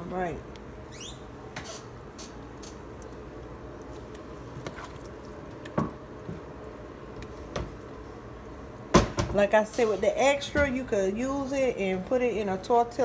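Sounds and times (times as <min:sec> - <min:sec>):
soft squishing of filling: 0:00.0 - 0:08.9.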